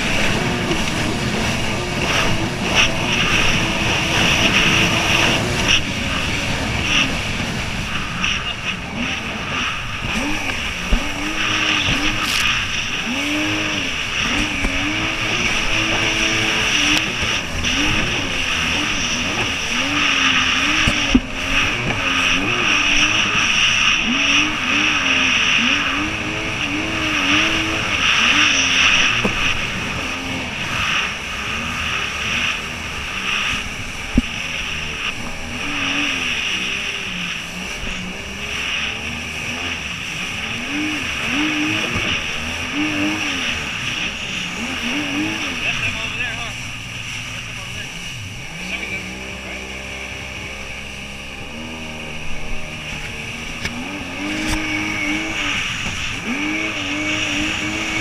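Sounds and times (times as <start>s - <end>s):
jet ski engine running: 0.0s - 58.0s
water spray and wind rushing: 0.0s - 58.0s.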